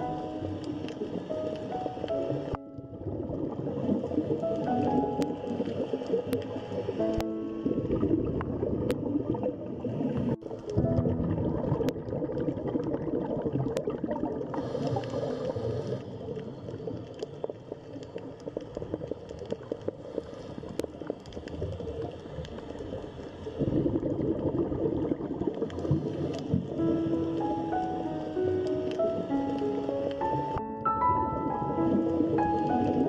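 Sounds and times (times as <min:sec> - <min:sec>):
small crackling clicks: 0:00.0 - 0:07.3, 0:11.8 - 0:30.7
underwater bubbling and gurgling: 0:00.0 - 0:33.0.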